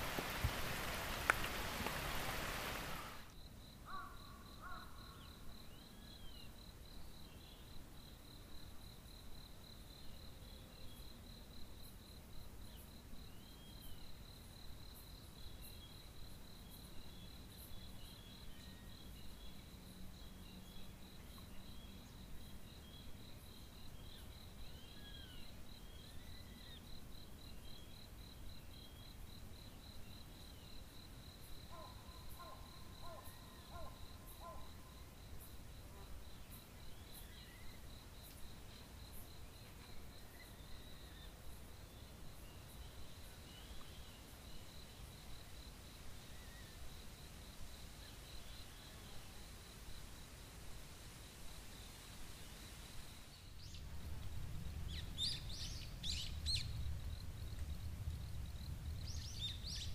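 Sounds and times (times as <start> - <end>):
heavy rain: 0.0 - 3.3
cricket trilling: 0.0 - 6.4, 16.8 - 47.3, 51.7 - 59.9.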